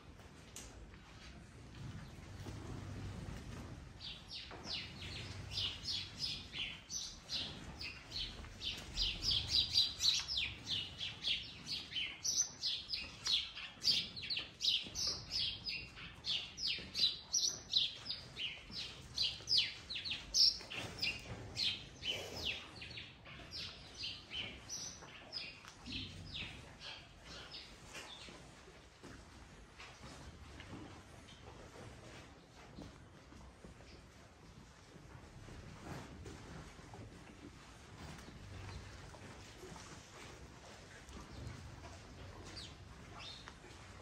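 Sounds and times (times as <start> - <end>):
small birds chirping: 4.0 - 28.5, 40.9 - 44.0.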